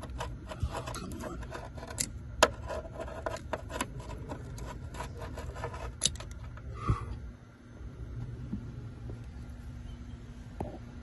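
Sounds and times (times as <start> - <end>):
tool clicking and scraping on parts: 0.0 - 6.7.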